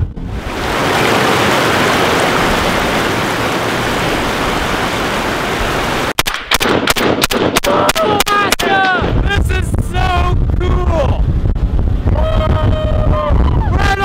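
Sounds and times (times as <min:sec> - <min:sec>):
river rushing over rocks: 0:00.3 - 0:06.1
rifle shots: 0:06.2 - 0:08.8.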